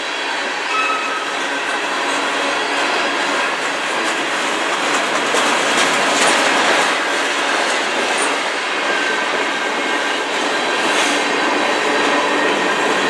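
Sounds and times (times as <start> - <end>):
freight train wheels clickety-clack: 0.0 - 13.0.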